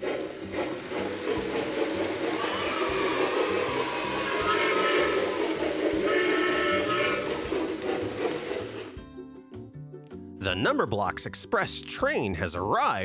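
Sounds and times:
steam locomotive chugging: 0.0 - 9.5
steam whistle blasts: 2.2 - 8.7.

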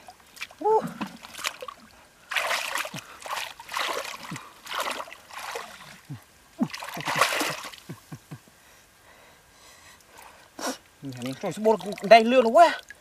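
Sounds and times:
hands splashing in muddy water: 0.0 - 7.8
low water plops: 0.0 - 8.4.

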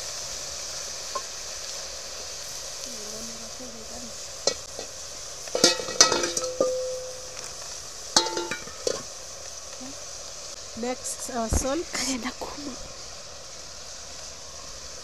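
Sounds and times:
greens sizzling in a pot: 0.0 - 15.0
metal pots clanking: 4.5 - 7.6, 8.2 - 9.1.

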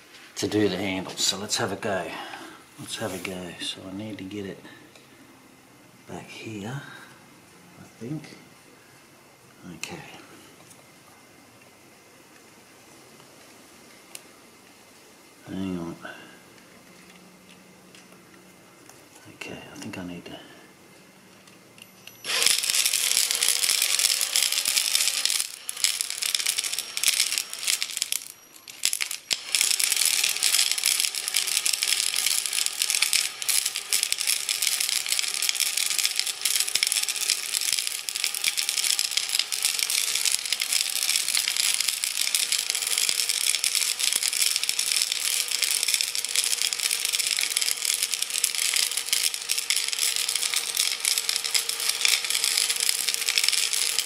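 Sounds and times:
drill motor whine: 21.8 - 54.0
rocks rattling in a glass jar: 22.2 - 54.0.

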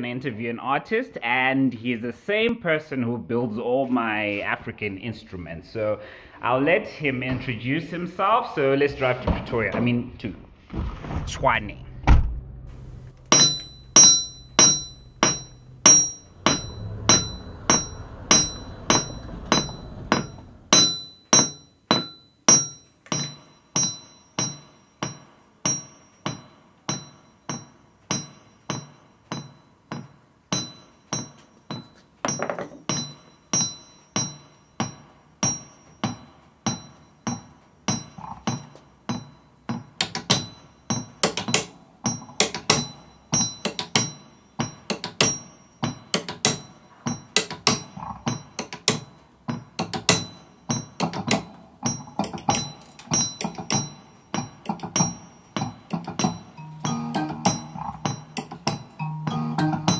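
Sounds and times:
hammer striking metal: 12.8 - 59.9.

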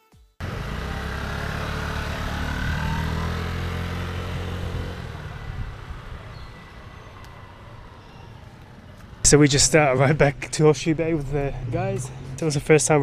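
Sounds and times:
scooter engine running: 0.4 - 9.2.

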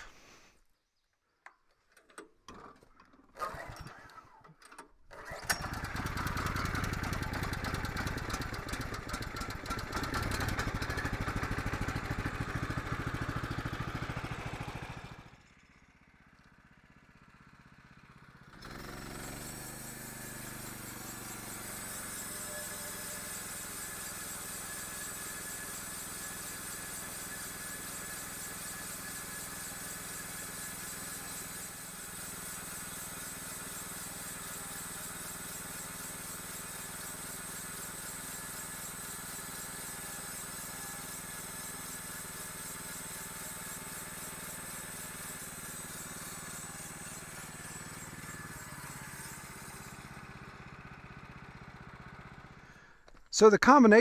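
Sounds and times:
band blade turning over wheels: 19.3 - 50.3
wire brush scrubbing rust: 20.8 - 50.2
gasoline engine running: 45.6 - 53.2.

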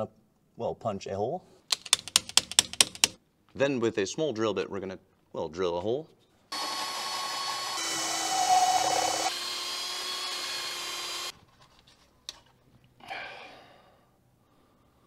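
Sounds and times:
cordless drill whining: 6.5 - 11.4.

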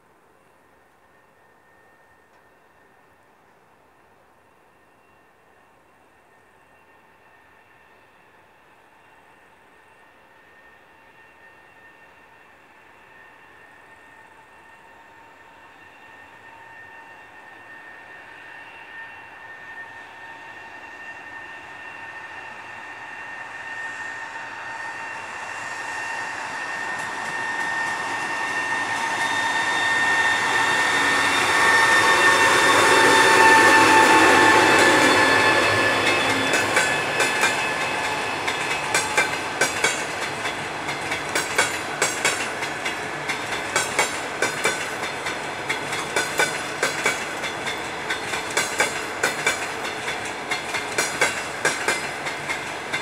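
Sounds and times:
electric locomotive high whine: 0.0 - 53.0
wheels clacking over rail joints: 33.6 - 53.0.

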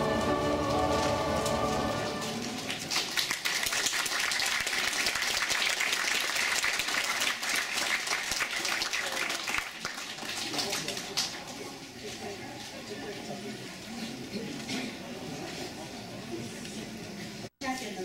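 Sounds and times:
choir singing chord: 0.0 - 2.6
audience applause: 0.7 - 11.4.

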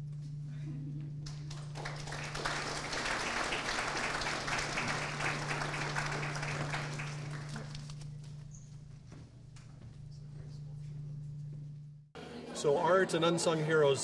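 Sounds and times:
steady low hum: 0.0 - 12.9
audience applauding: 1.2 - 8.0.

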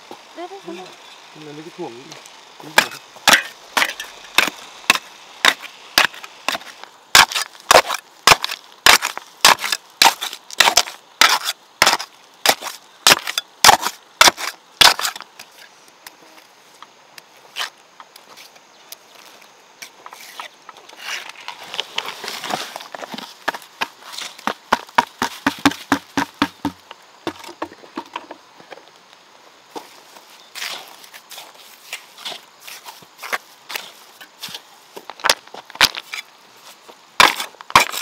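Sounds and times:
steel bar knocking into rocks: 2.7 - 6.6.

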